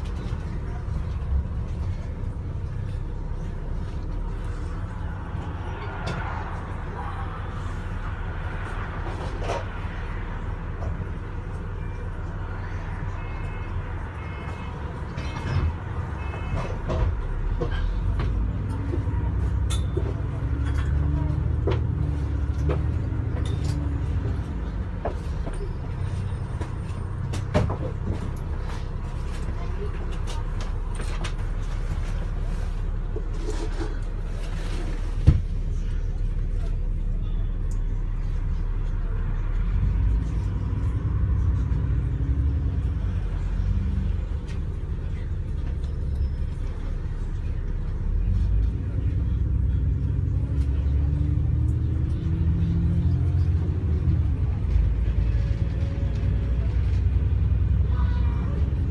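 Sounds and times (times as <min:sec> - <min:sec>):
bus engine and road rumble: 0:00.0 - 0:58.9.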